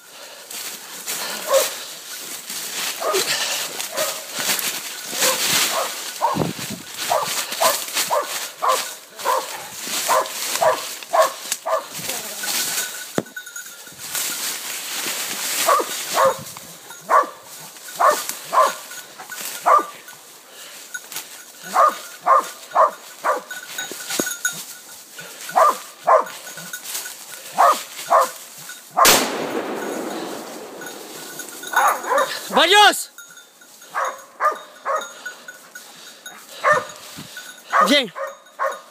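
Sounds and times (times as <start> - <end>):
footsteps in dry leaves: 0.0 - 38.9
dog barking: 1.4 - 1.8, 3.0 - 4.3, 5.2 - 6.4, 7.1 - 12.0, 15.6 - 18.9, 19.6 - 20.0, 21.7 - 23.5, 25.5 - 26.4, 27.6 - 28.4, 31.6 - 32.5, 33.9 - 35.2, 36.6 - 37.0, 37.7 - 38.9
sharp crack: 29.0 - 32.4.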